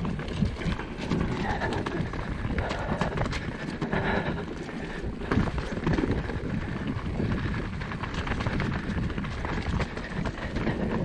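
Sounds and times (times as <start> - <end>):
wind buffeting microphone: 0.0 - 11.0
bike knocks and rattles: 4.6 - 10.9.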